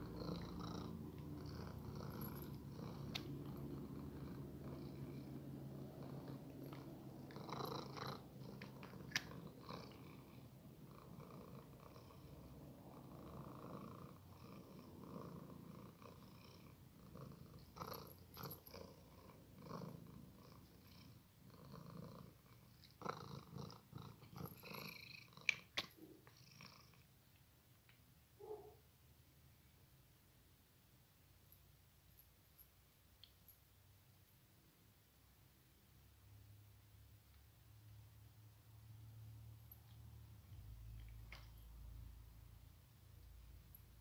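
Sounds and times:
cat purring: 0.0 - 27.2, 38.9 - 44.0.

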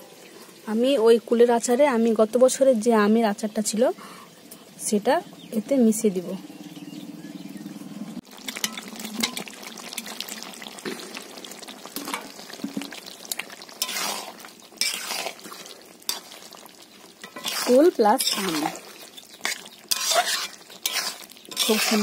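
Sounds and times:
syrup sizzling: 8.2 - 22.0
spoon scraping a pan: 8.5 - 9.6, 12.0 - 12.9, 13.8 - 16.6, 17.2 - 22.0.

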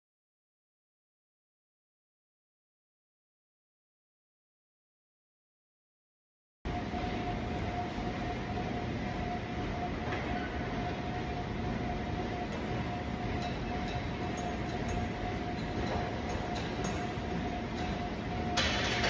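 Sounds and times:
faint steady whine: 6.7 - 19.0.

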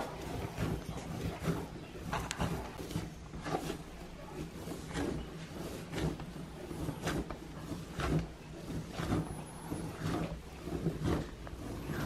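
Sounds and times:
dough kneaded on wooden board: 0.0 - 12.0.

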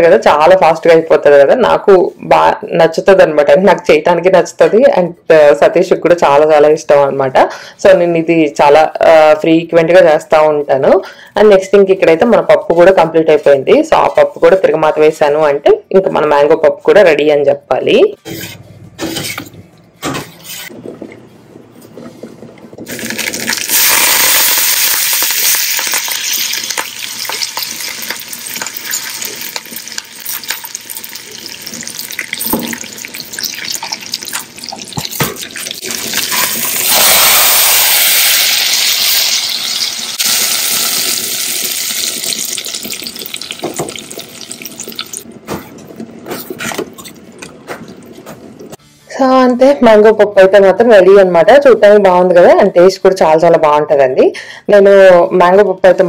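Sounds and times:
spices sizzling in hot oil: 22.9 - 45.2.

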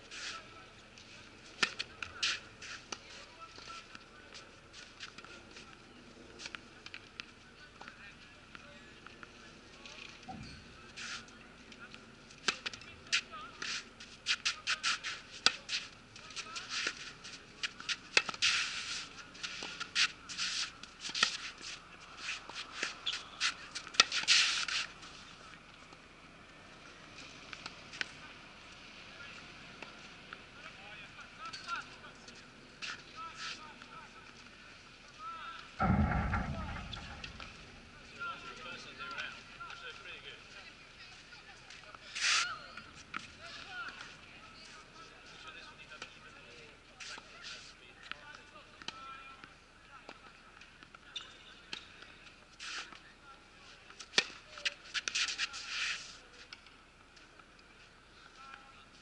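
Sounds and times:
shoes sliding on gritty court: 0.0 - 3.8, 54.5 - 56.4
ball hits and bounces: 35.8 - 37.8.

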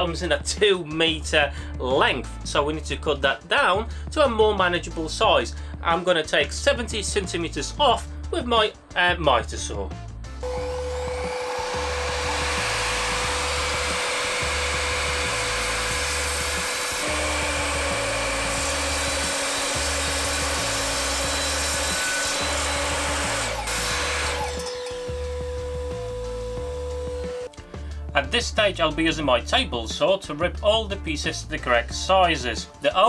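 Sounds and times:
background music with steady beat: 0.0 - 33.0
miter saw cutting wood: 10.4 - 27.6.

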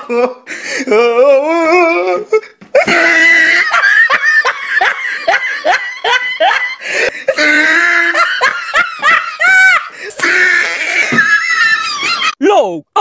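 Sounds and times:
person laughing hard: 2.0 - 12.4.

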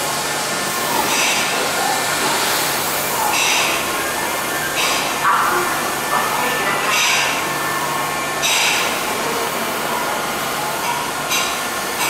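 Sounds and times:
electric train equipment humming: 0.0 - 12.0.

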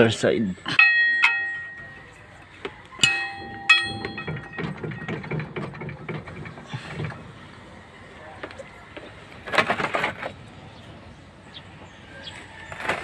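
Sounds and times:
bell-like metallic ring: 0.7 - 2.2, 3.0 - 5.1
light clattering and knocking: 0.8 - 7.4.

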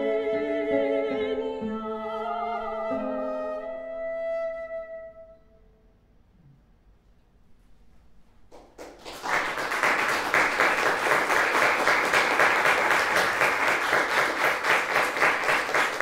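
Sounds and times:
audience clapping: 8.5 - 16.0.

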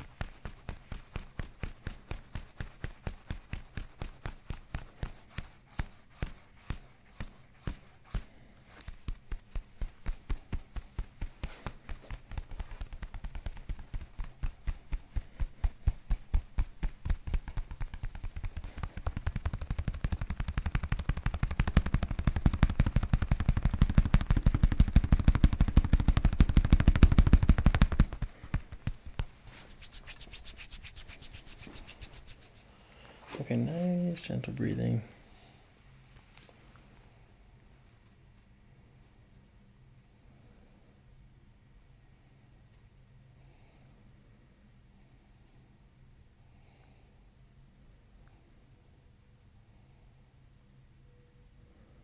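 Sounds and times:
hands slapping bare back: 0.0 - 32.6
hands rubbing skin: 0.0 - 33.6.

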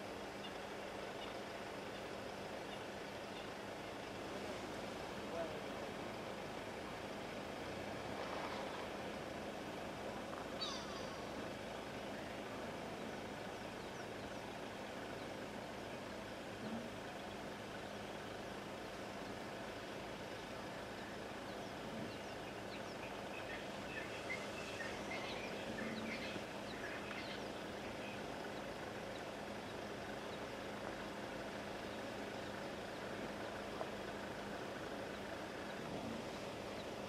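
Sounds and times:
vehicle hum: 0.0 - 37.0
bird chirps: 10.6 - 11.4, 20.9 - 30.5.

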